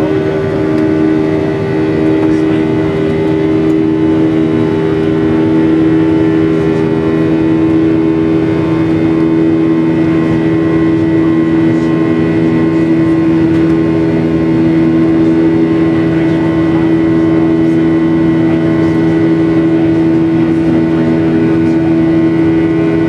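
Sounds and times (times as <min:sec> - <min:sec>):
jet engine drone: 0:00.0 - 0:23.0.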